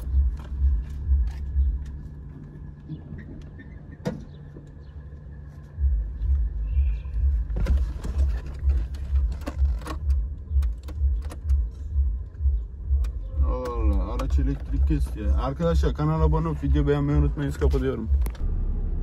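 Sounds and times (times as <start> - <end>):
car engine idling: 0.0 - 19.0
sharp clicks: 8.8 - 11.8, 12.9 - 14.8.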